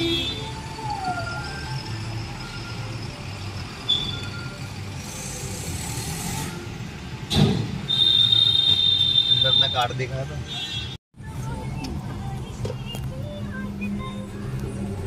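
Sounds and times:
idling car and traffic rumble: 0.0s - 15.0s
sudden thump: 7.3s - 7.8s.

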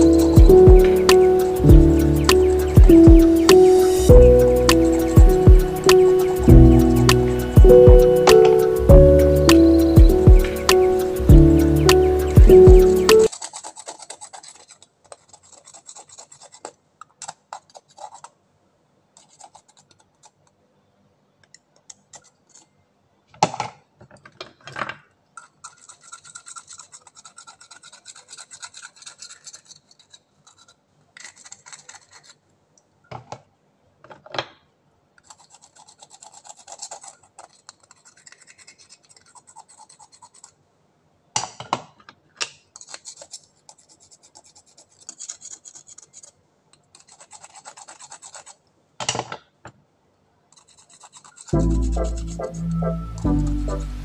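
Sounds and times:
sharp knocks: 0.4s - 13.3s
knife scraping mussel shells: 13.2s - 16.7s, 25.4s - 32.4s, 35.2s - 40.6s, 42.7s - 46.3s, 50.5s - 52.6s.

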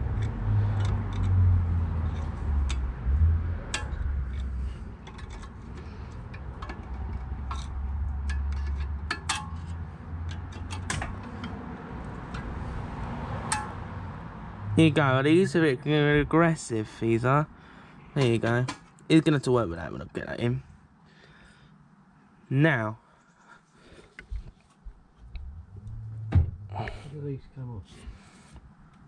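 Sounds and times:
low rumble: 25.2s - 27.1s.

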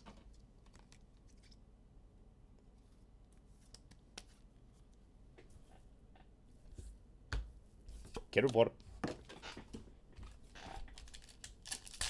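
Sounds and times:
cards and plastic sleeves rustling: 10.2s - 12.0s.

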